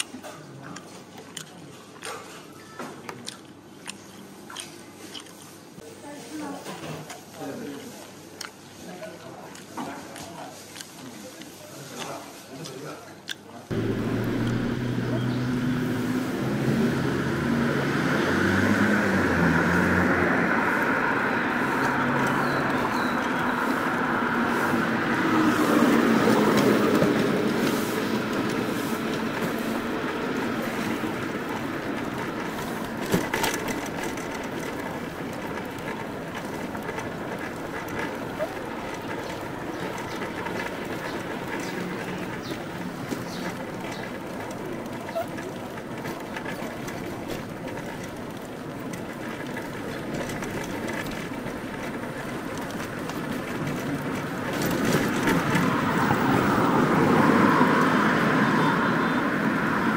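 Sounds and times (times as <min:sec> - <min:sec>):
loud vehicle passing: 0:13.7 - 0:59.9
rumble of passing vehicles: 0:13.7 - 0:59.9.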